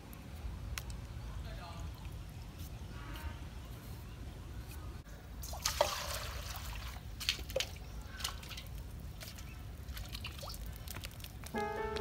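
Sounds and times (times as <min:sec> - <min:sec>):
water splash: 0:05.4 - 0:10.6
water trickling and dripping: 0:05.4 - 0:12.0.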